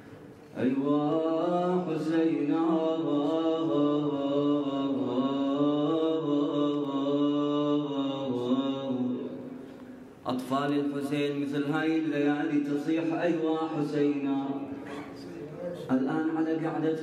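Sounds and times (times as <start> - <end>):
man singing a wavering lament: 0.6 - 9.4.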